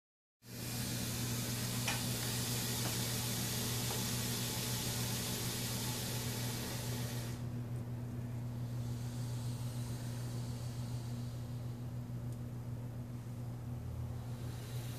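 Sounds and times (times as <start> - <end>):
snake hissing: 0.4 - 7.5, 8.6 - 11.8, 14.2 - 14.9.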